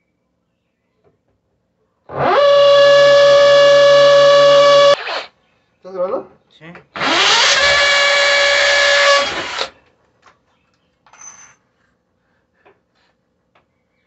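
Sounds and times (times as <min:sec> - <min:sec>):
cordless drill whining: 0:02.1 - 0:05.3, 0:07.0 - 0:09.8.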